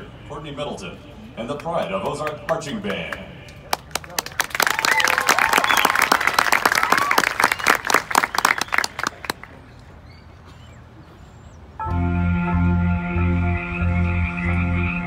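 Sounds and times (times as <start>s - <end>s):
crowd applauding and cheering: 3.7s - 9.6s.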